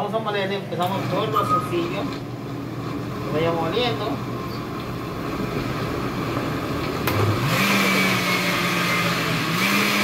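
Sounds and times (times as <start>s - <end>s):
blender switch click: 7.1s - 7.3s
blender motor whining hum: 7.1s - 10.0s.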